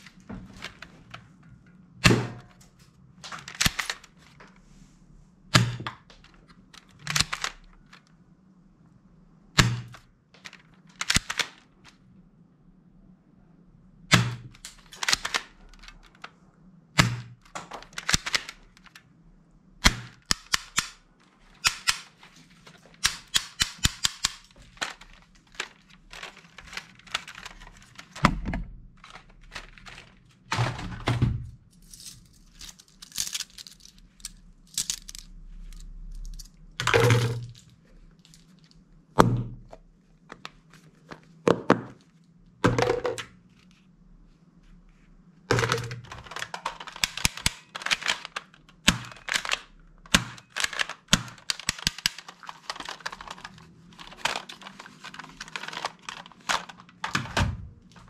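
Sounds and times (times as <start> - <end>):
toy rifle cracks and clicks: 3.5 - 4.0, 10.9 - 11.6, 14.6 - 15.9, 17.8 - 19.0, 19.8 - 21.0, 21.6 - 22.1, 23.0 - 25.0, 33.0 - 35.3, 46.3 - 53.4.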